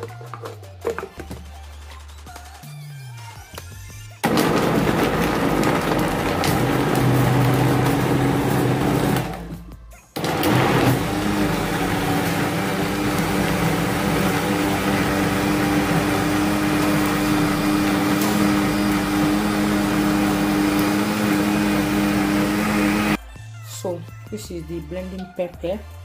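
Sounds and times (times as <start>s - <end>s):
electric blender motor: 4.2s - 9.6s, 10.2s - 23.2s.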